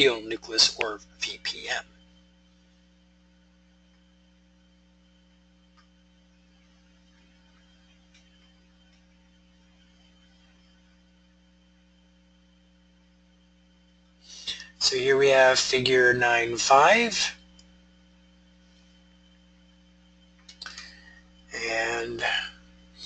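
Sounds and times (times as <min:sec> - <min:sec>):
faint electrical hum: 0:00.0 - 0:23.0
faint clicks: 0:20.4 - 0:20.9.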